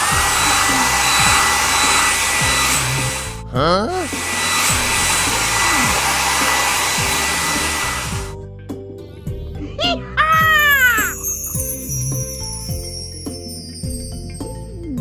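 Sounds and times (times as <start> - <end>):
air blower rushing with whine: 0.0 - 8.4.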